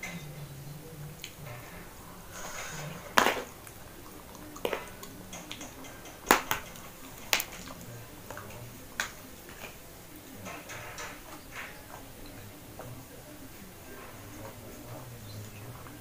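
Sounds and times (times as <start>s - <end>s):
cutlery clicks and knocks: 4.4s - 9.8s, 10.4s - 12.1s.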